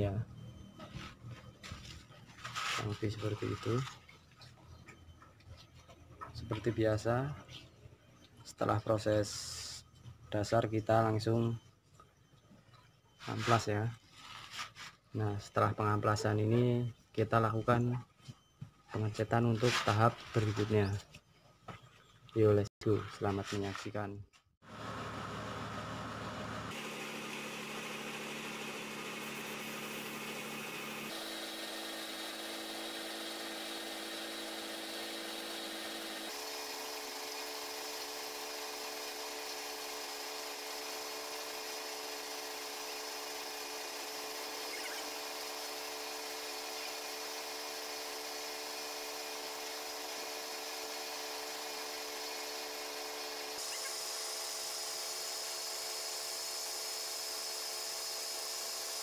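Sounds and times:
air spray gun hissing: 53.5s - 57.0s.

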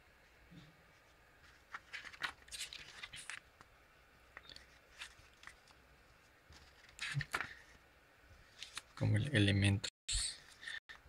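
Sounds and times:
paper pages rustling: 0.9s - 3.7s, 4.4s - 7.8s, 8.5s - 9.0s.

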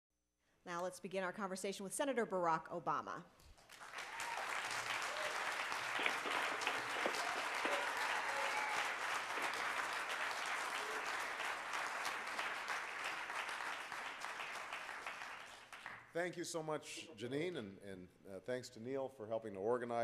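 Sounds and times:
audience applauding: 3.6s - 16.1s.

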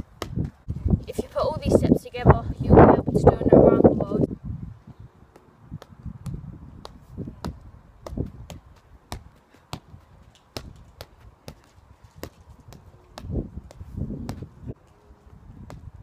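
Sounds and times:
football kicked with feet: 0.0s - 0.7s, 5.7s - 14.7s, 15.6s - 16.0s.

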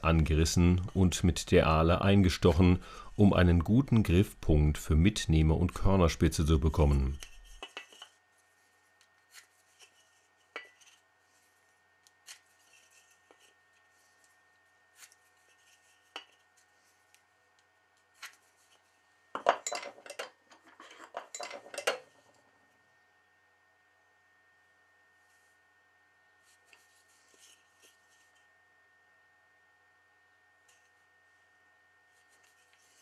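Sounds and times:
scratchy pencil strokes on wood: 6.7s - 14.3s, 14.9s - 17.1s.

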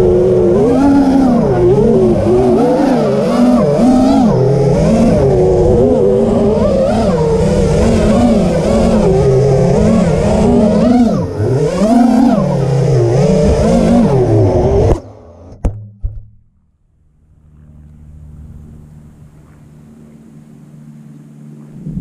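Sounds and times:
drone motors whining: 0.0s - 15.6s
faint low hum: 0.0s - 22.0s.

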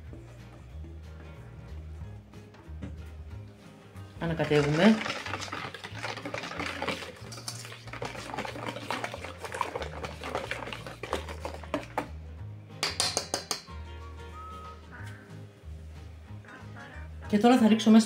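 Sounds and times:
whisk beating batter in metal bowl: 4.2s - 12.2s.

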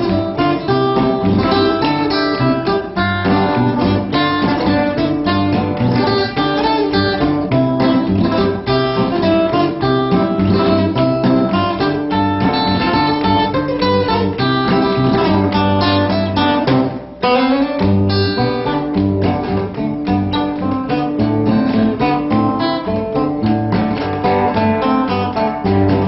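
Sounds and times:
acoustic guitar music: 0.0s - 26.0s.

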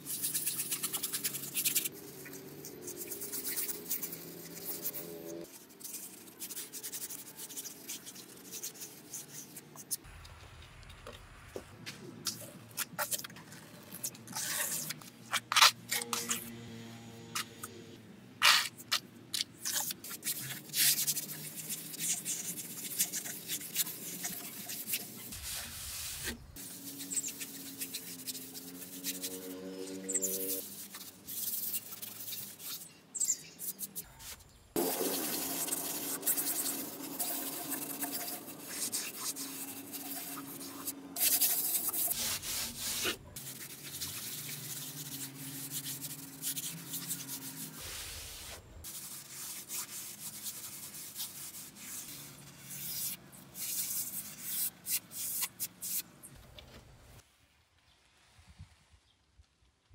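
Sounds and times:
trowel scraping wet cement: 12.3s - 16.4s, 34.8s - 55.0s.

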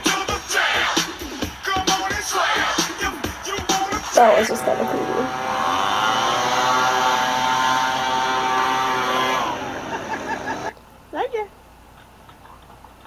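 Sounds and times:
leaf blower motor running: 4.2s - 10.7s.

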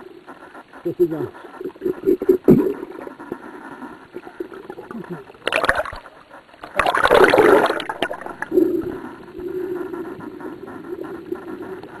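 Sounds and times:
water gurgling and rushing: 4.2s - 8.8s.

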